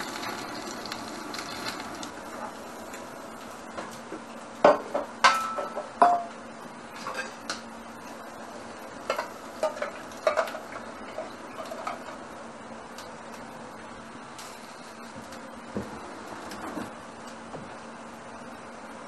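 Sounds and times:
faint steady hum: 0.0s - 19.0s
pots and pans clanking: 4.7s - 6.3s, 7.0s - 7.6s, 9.0s - 12.2s.

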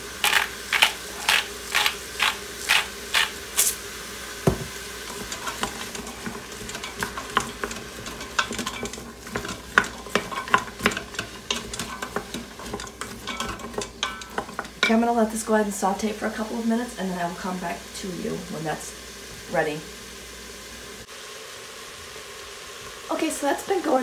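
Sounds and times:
faint sizzle: 0.0s - 24.0s
spoon scraping metal pot: 0.2s - 3.4s, 5.1s - 15.0s
salt grinder clicking: 0.2s - 3.7s
knock: 4.5s - 4.7s.

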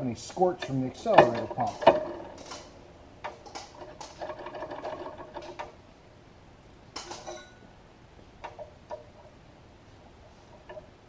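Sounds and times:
throttle linkage clicking: 0.6s - 5.8s.

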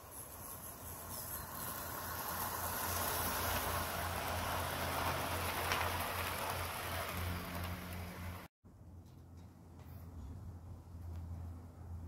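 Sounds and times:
model train wheels on rails: 0.0s - 10.3s.

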